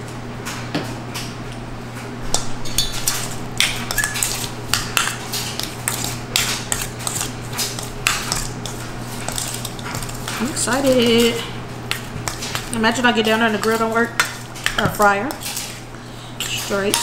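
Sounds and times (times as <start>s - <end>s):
steady low hum: 0.0s - 17.0s
metal spoon clinking on bowl: 16.8s - 17.0s.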